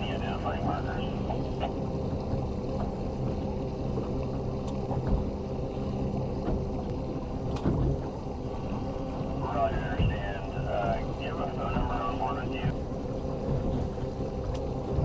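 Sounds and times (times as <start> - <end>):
boat motor running: 0.0 - 15.0.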